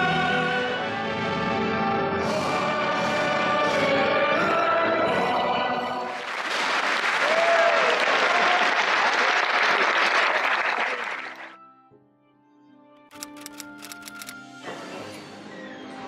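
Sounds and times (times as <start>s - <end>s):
audience applauding: 6.1s - 11.6s.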